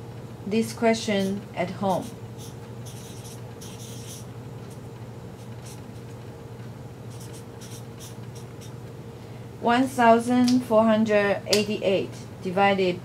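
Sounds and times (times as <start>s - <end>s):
steady low hum: 0.0s - 13.0s
marker scratching on paper: 1.2s - 4.8s, 5.4s - 6.2s, 7.1s - 8.8s.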